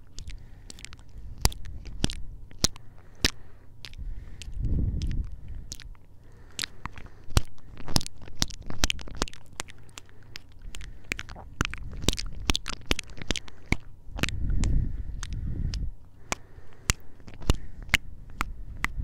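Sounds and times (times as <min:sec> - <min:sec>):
close kisses and lip smacks: 0:00.0 - 0:19.0
low rumble: 0:03.8 - 0:06.2, 0:10.5 - 0:16.1.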